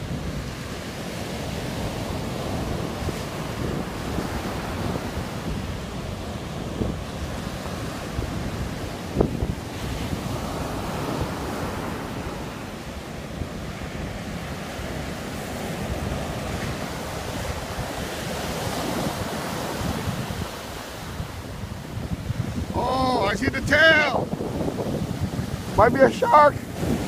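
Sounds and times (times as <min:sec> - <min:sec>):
ocean surf breaking on beach: 0:00.0 - 0:27.0
wind blowing across microphone: 0:00.0 - 0:27.0.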